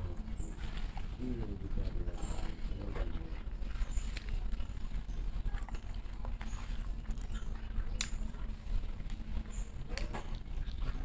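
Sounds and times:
steady low rumble: 0:00.0 - 0:11.0
person chewing and lip-smacking: 0:03.7 - 0:11.0.

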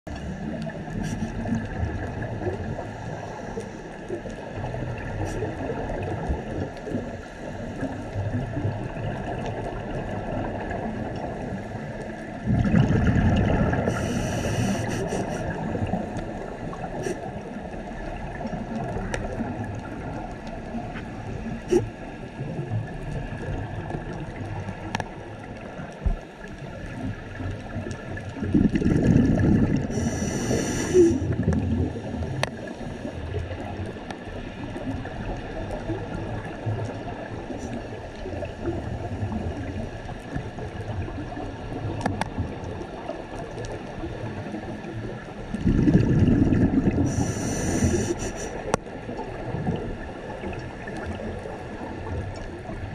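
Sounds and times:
bubbling and hiss: 0:00.1 - 0:52.9
underwater rumble and gurgling: 0:00.1 - 0:52.9.

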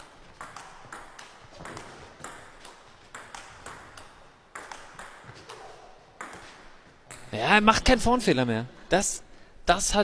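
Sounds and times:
table tennis ball clicking: 0:00.4 - 0:05.2.

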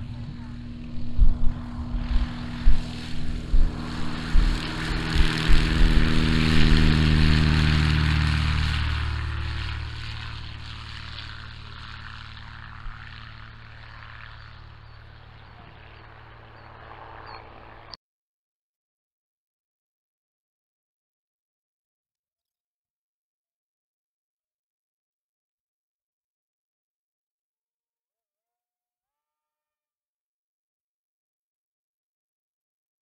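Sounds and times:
propeller airplane engine drone: 0:00.0 - 0:18.0
wind buffeting microphone: 0:00.0 - 0:18.0.

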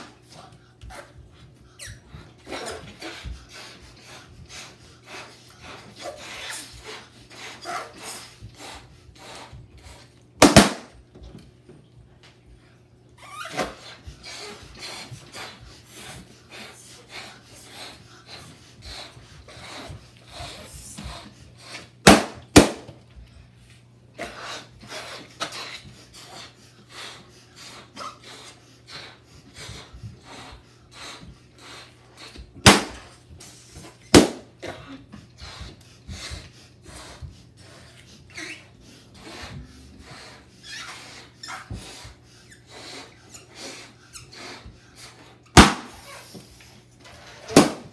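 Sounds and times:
balloon pops: 0:10.4 - 0:11.0, 0:22.0 - 0:23.0, 0:32.6 - 0:33.0, 0:34.1 - 0:34.4, 0:45.6 - 0:46.1, 0:47.4 - 0:47.9.

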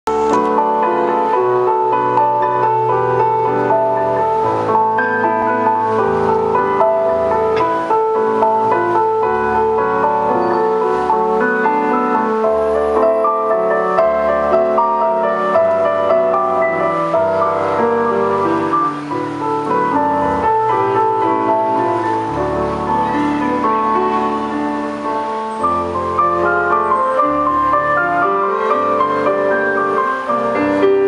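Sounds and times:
piano-like keyboard music: 0:00.1 - 0:31.0.

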